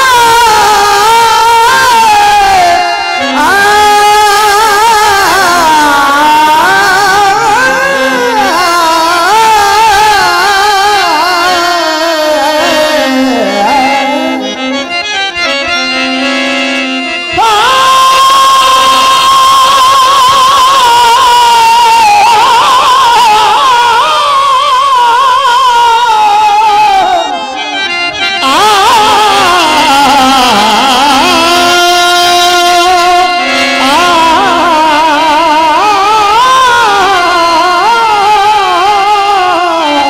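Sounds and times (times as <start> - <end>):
man singing folk song: 0.0 - 14.6, 28.4 - 40.0
instrumental accompaniment: 0.0 - 40.0.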